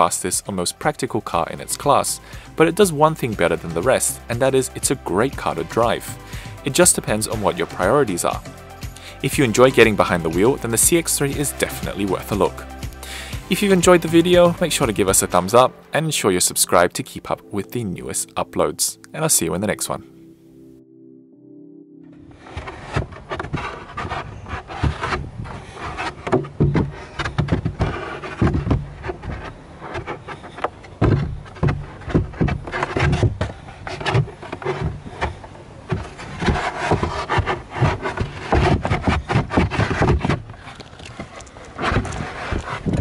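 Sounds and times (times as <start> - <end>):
microphone handling noise: 22.2 - 43.0.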